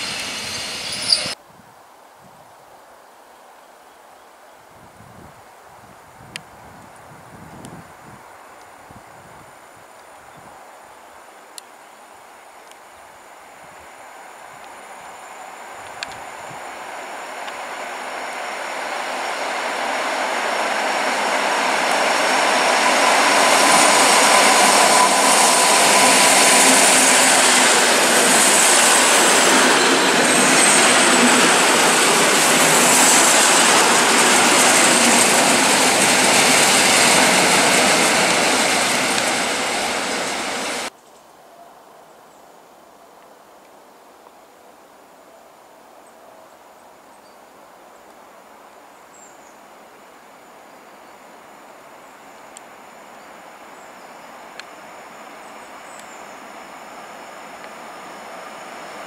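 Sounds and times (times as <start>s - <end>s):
train wheels rushing on rails: 0.0s - 1.4s, 14.8s - 40.9s, 54.4s - 59.0s.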